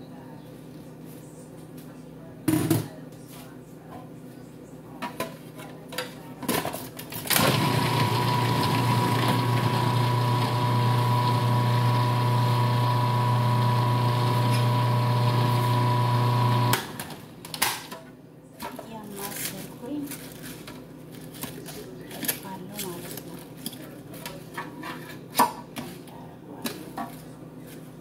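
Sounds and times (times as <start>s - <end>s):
food processor motor whine: 7.3s - 17.2s.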